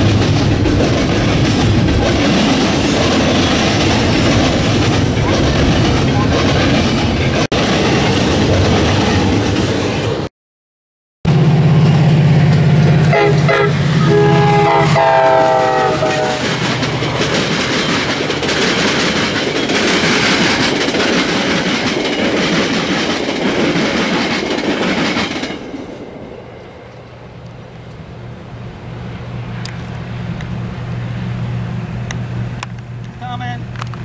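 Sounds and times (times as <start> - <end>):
diesel locomotive engine drone: 0.0 - 10.3, 11.3 - 34.0
train coaches clacking over rails: 0.0 - 10.3, 11.7 - 26.1
train horn blasts: 12.6 - 16.6.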